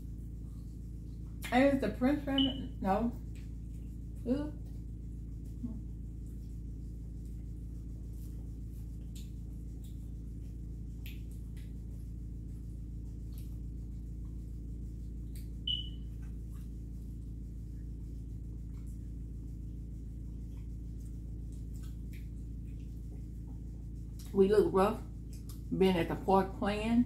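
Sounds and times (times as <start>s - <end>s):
steady low hum: 0.0s - 27.0s
short high squeak: 15.7s - 16.0s
chewing mouth sounds: 20.5s - 23.6s, 25.2s - 25.7s.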